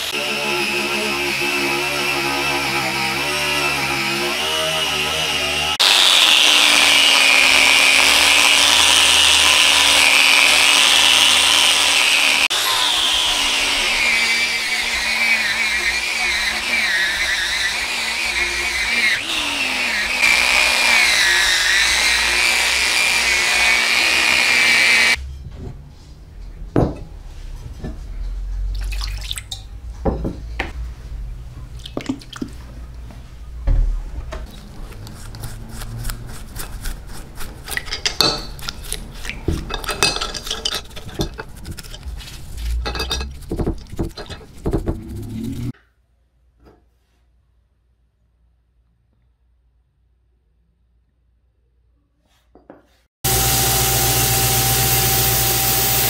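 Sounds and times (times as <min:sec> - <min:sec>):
angle grinder on metal tube: 0:00.0 - 0:25.2, 0:34.9 - 0:42.2, 0:53.2 - 0:56.0.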